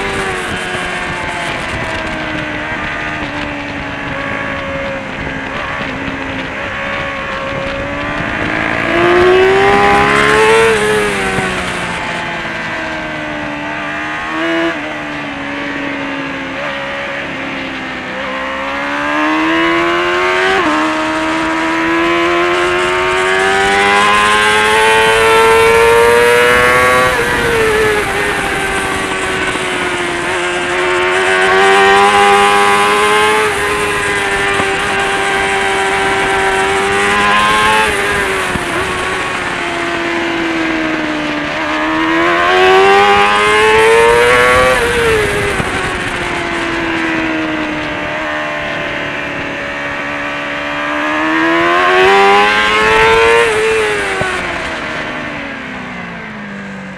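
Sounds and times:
motorcycle engine at high revs: 0.0s - 56.9s
wind rushing: 20.5s - 50.2s.

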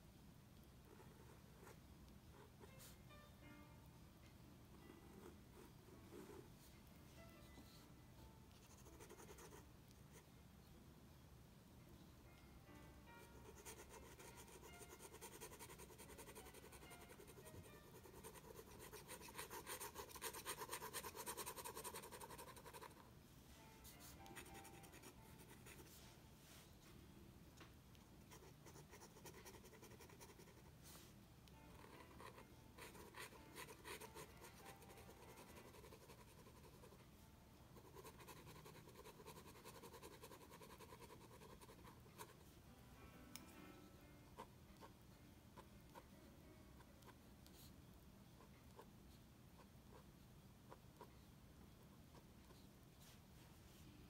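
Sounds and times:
pen nib scratching on paper: 13.5s - 23.0s, 28.3s - 30.7s, 31.7s - 37.0s, 37.8s - 42.4s.

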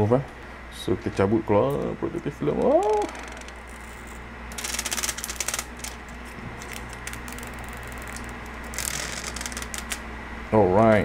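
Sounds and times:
plastic film peeling crackle: 3.4s - 10.0s.

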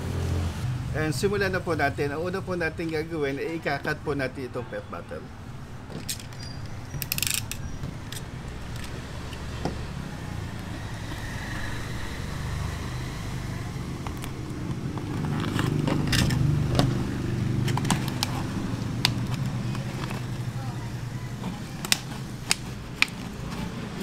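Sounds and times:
plastic crackling and clicking: 14.0s - 20.6s, 21.3s - 24.0s
knife cutting plastic bottle: 21.3s - 24.0s.

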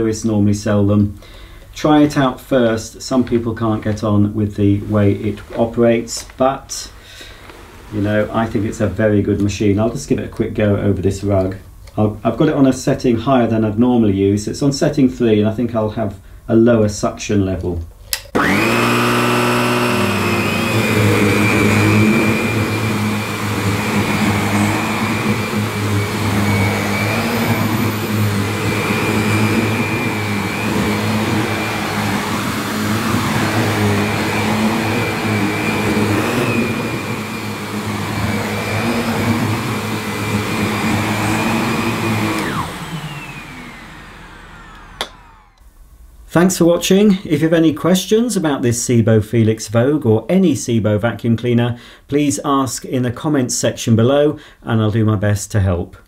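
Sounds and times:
vacuum cleaner running on a rug: 18.4s - 45.6s.

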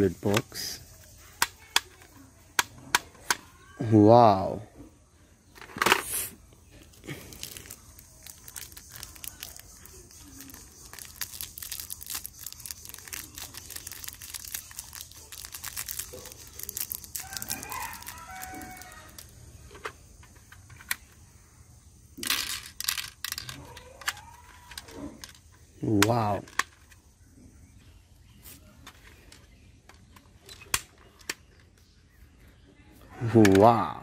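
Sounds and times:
plastic pellets clicking: 6.9s - 21.1s, 22.2s - 26.9s
plastic packet crinkling: 7.0s - 19.3s
toy gun rattle: 7.3s - 19.4s, 22.2s - 25.5s.

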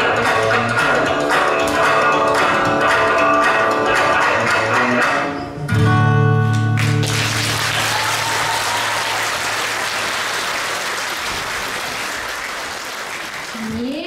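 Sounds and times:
audience applause: 6.8s - 14.0s.

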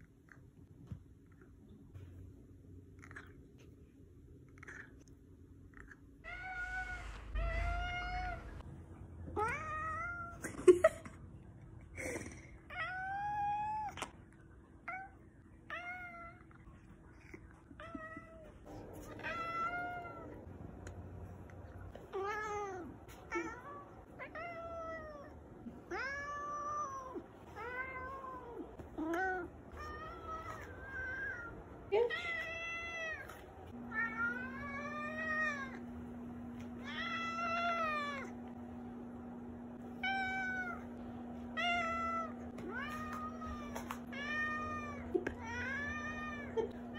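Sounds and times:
cat meowing: 6.2s - 8.6s.

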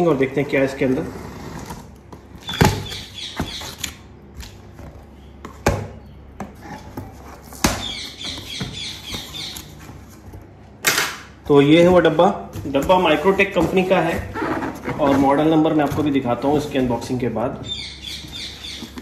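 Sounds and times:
cardboard rustling: 11.7s - 17.2s.

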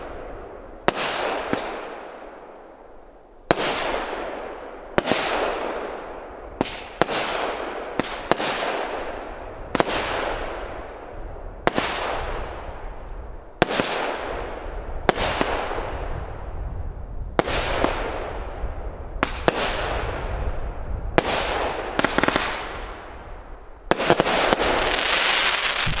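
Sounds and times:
fireworks bangs with hissing stars: 0.0s - 2.1s, 3.5s - 10.7s, 13.6s - 16.6s, 17.4s - 18.6s, 19.2s - 20.5s, 21.1s - 23.2s, 23.8s - 26.0s.

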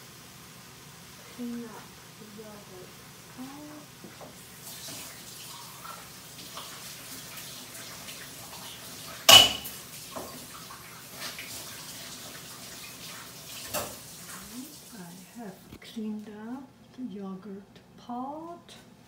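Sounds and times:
faint running water: 0.0s - 16.7s
rinsing and scraping pot: 4.2s - 15.3s.

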